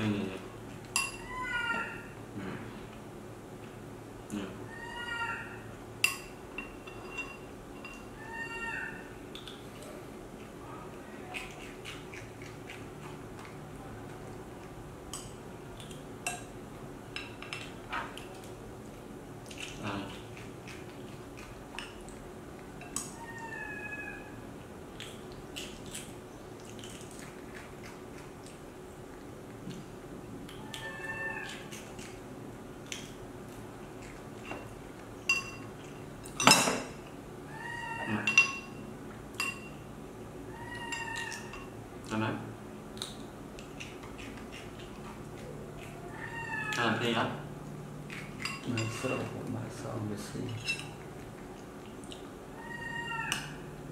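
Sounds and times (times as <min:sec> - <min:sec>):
metal spoon clinking on ceramic plate: 0:01.0 - 0:01.2, 0:06.0 - 0:08.1, 0:35.3 - 0:35.7, 0:38.2 - 0:38.8, 0:39.4 - 0:39.8
baby monkey calling: 0:01.2 - 0:02.2, 0:04.7 - 0:05.7, 0:08.2 - 0:09.2, 0:23.1 - 0:24.4, 0:30.6 - 0:31.7, 0:37.5 - 0:38.3, 0:40.5 - 0:41.5, 0:46.0 - 0:47.0, 0:52.5 - 0:53.7.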